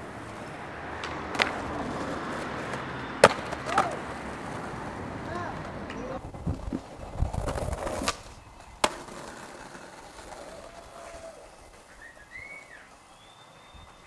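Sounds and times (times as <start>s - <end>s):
skateboard clacks: 0.0s - 14.0s
skateboard wheels rolling on pavement: 0.0s - 14.0s.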